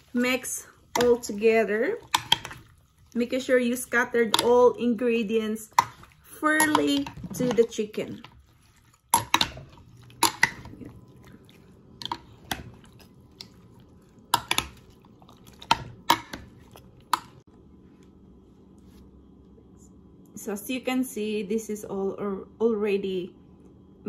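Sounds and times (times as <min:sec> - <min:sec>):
wet squish of meat: 0:08.1 - 0:17.4.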